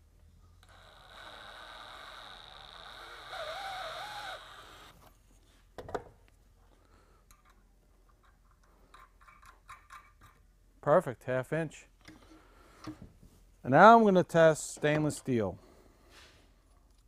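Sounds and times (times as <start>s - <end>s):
drill whining cutting bolt: 0.6s - 5.0s.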